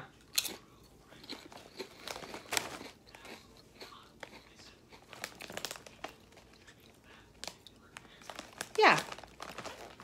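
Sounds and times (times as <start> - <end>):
person crunching potato chip: 0.1 - 10.0.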